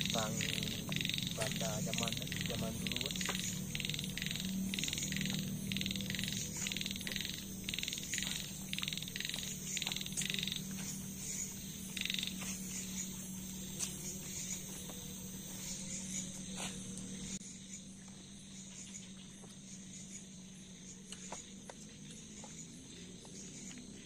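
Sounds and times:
frog calling: 0.0 - 17.8
low hum: 0.0 - 24.0.

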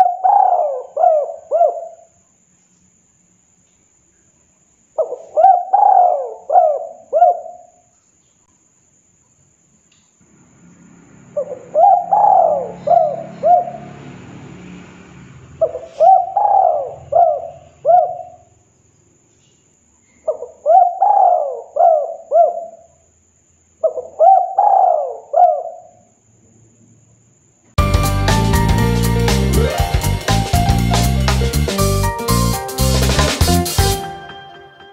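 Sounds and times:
dove cooing: 0.0 - 2.1, 5.0 - 7.7, 11.4 - 13.9, 15.6 - 18.4, 20.3 - 22.8, 23.8 - 25.9.

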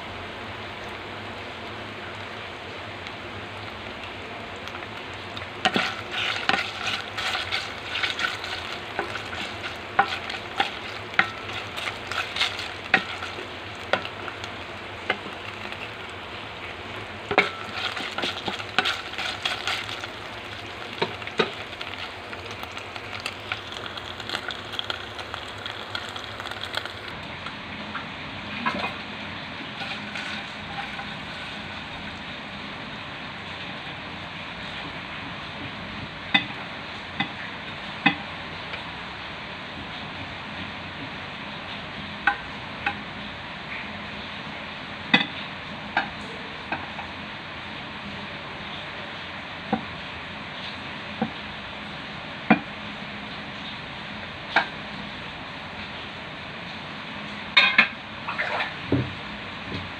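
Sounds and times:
meat sizzling in oil: 0.1 - 59.9
spatula scraping a pan: 5.6 - 14.1, 17.3 - 23.3, 29.8 - 31.6.

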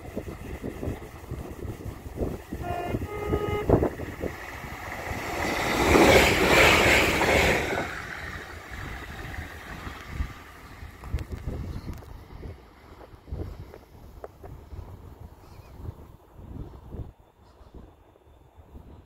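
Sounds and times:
train rushing past: 0.0 - 13.7
wind buffeting microphone: 0.0 - 19.0
two-tone train horn: 2.4 - 4.3.

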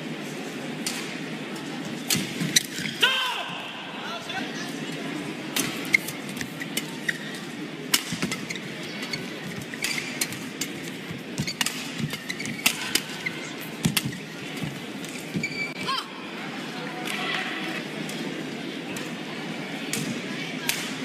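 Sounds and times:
large hall background noise: 0.0 - 21.0
court shoes squeaking: 2.0 - 3.0, 5.6 - 16.0.

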